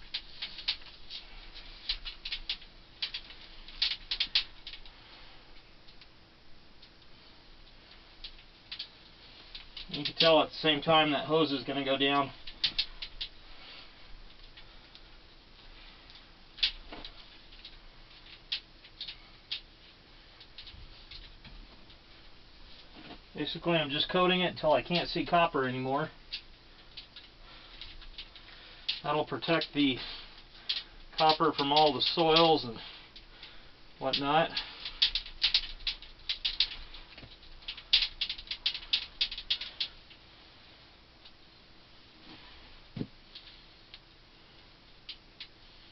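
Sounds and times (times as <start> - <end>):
sharp clicks and crackles: 0.0 - 6.2, 6.8 - 22.2, 22.8 - 40.2, 43.0 - 45.9.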